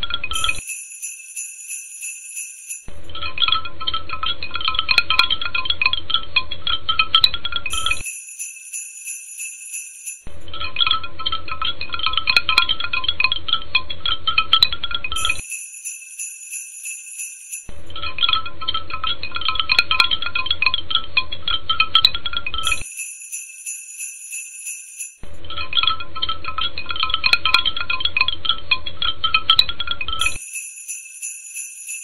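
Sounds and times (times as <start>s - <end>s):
tinkling bells and chimes: 0.3s - 3.3s, 7.7s - 10.5s, 15.2s - 18.1s, 22.6s - 25.4s, 30.2s - 32.0s
thin high shimmer: 0.4s - 3.1s, 7.7s - 10.4s, 15.2s - 17.8s, 22.6s - 25.3s, 30.2s - 32.0s.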